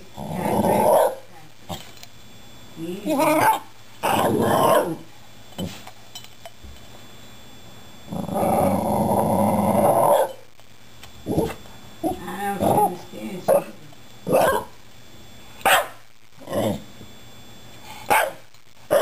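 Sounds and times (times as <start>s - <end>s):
dog growling: 0.0s - 1.2s, 3.1s - 5.8s, 8.1s - 10.3s, 11.2s - 11.6s, 16.4s - 16.9s.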